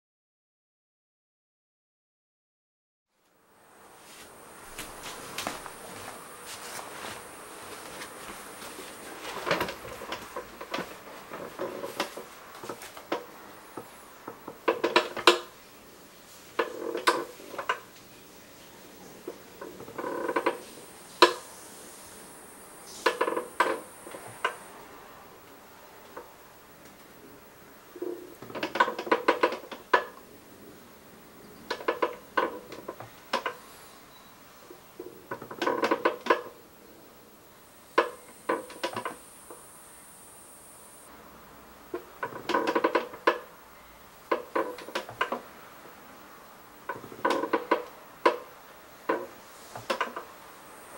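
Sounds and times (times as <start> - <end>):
office chair creaking: 4.0 - 15.6, 16.5 - 17.8, 19.3 - 21.5, 22.9 - 24.6, 28.0 - 30.2, 35.0 - 36.5, 38.0 - 39.6, 42.0 - 43.5, 44.3 - 45.5, 46.9 - 48.4, 49.1 - 50.3
chair clicks and ticks: 4.7 - 15.6, 16.6 - 17.9, 19.2 - 21.4, 23.0 - 24.6, 28.3 - 30.2, 31.7 - 33.6, 35.0 - 36.6, 38.0 - 39.6, 42.0 - 43.6, 44.3 - 45.5, 46.9 - 48.5, 49.1 - 50.3.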